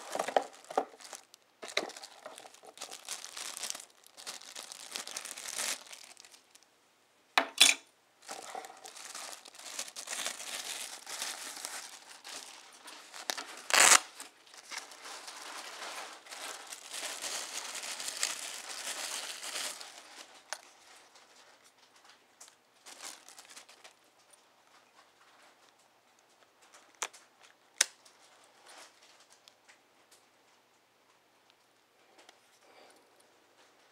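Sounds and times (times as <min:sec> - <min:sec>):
plastic bags crinkling: 0:00.0 - 0:06.7, 0:08.2 - 0:25.8.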